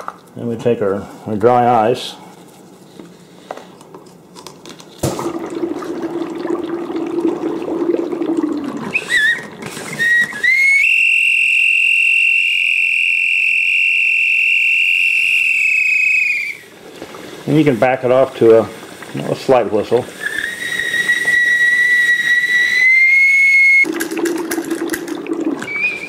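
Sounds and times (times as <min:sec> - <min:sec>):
high plastic whistle: 0:08.8 - 0:16.7, 0:20.2 - 0:23.9, 0:25.6 - 0:26.0
dry ice fizzing in water: 0:14.0 - 0:26.0.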